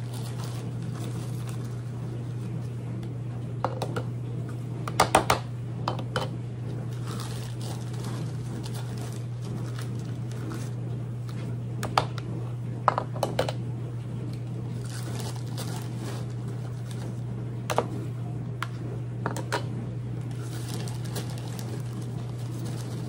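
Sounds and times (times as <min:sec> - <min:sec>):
bag rustling: 0:00.0 - 0:01.9, 0:06.9 - 0:10.8, 0:14.7 - 0:17.2, 0:20.3 - 0:23.0
steady low hum: 0:00.0 - 0:23.0.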